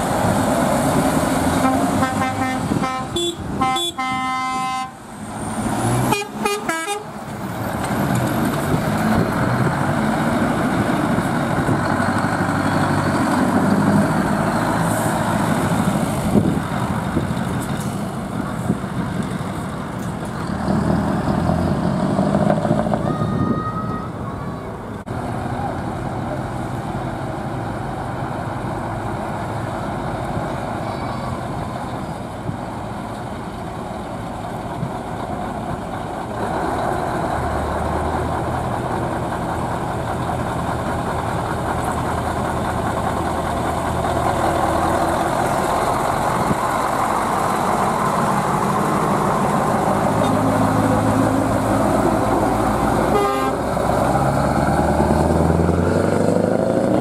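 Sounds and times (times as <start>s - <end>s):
truck engine accelerating: 0.0s - 23.6s, 31.4s - 57.0s.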